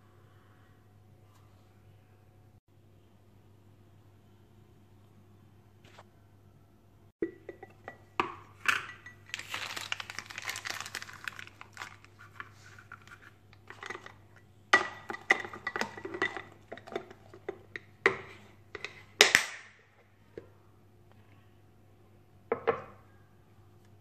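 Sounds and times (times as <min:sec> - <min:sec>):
plastic bag crinkling: 0:09.0 - 0:13.8.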